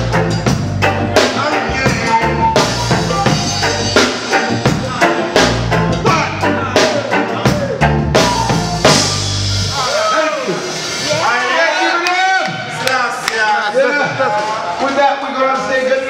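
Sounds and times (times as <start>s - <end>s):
deep bass notes: 0.0s - 10.0s
drum kit rimshots and kick: 0.0s - 12.9s
live reggae band playing: 0.0s - 16.0s.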